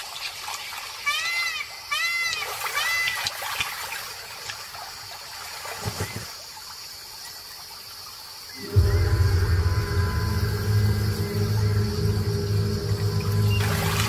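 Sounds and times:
water trickling and splashing: 0:00.0 - 0:08.5, 0:11.3 - 0:14.0
low thud: 0:08.6 - 0:14.0.

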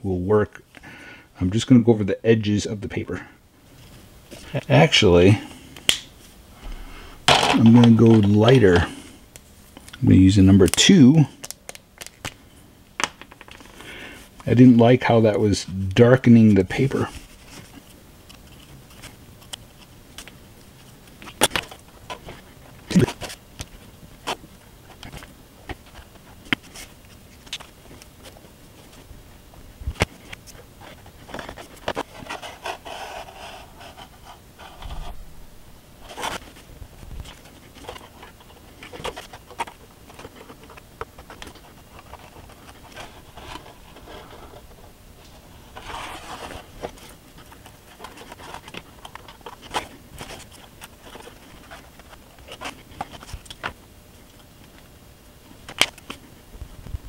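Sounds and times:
scraping and rubbing: 0:30.0 - 0:35.2, 0:36.0 - 0:53.4.

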